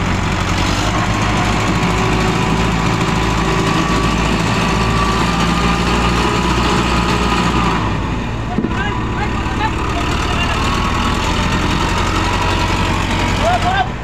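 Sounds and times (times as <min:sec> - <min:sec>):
diesel engines running: 0:00.0 - 0:14.0.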